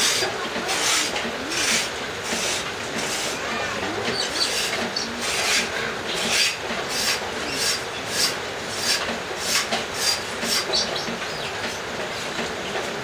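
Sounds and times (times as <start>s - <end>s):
machete scraping wood: 0.0s - 3.4s.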